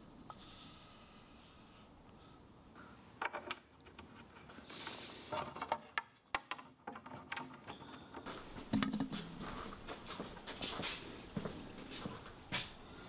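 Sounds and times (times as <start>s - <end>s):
wood knocking and clicking: 3.2s - 4.3s, 5.3s - 9.3s.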